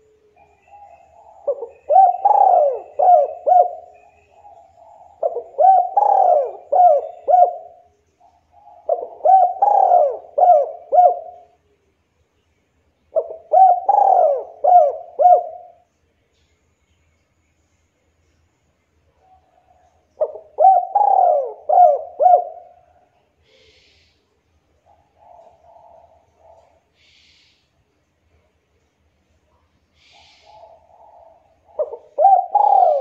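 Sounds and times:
dove cooing: 0.0s - 11.6s, 13.1s - 15.9s, 19.2s - 24.0s, 24.8s - 27.3s, 30.0s - 33.0s.

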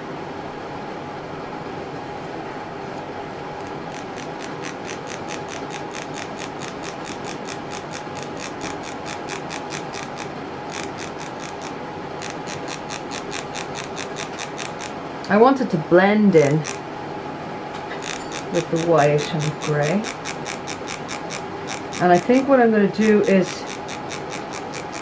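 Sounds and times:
sifter rasping ticks: 3.6s - 15.0s, 16.4s - 16.8s, 17.9s - 25.0s.

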